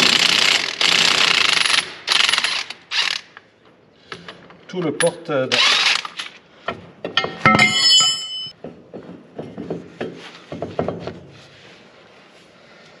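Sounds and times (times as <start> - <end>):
loud ringing metal clank: 7.2 - 8.5.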